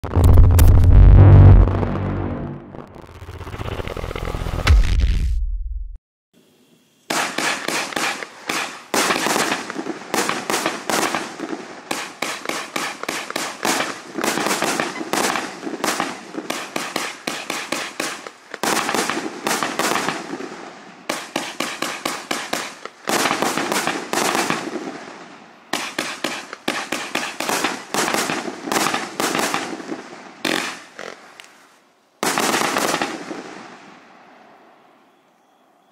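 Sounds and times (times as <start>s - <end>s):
fireworks firing: 7.1s - 31.4s, 32.2s - 34.0s.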